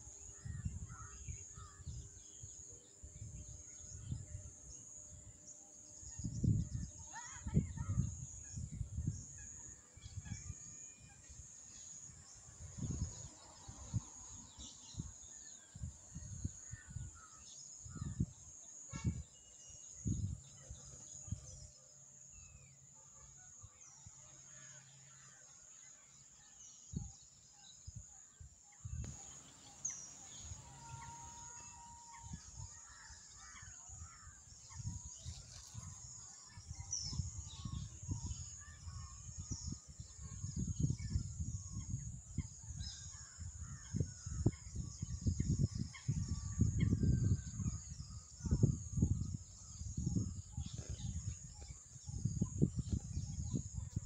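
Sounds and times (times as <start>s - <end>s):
wind buffeting microphone: 0.1s - 19.3s, 19.9s - 21.7s, 28.8s - 54.0s
small birds chirping: 26.2s - 54.0s.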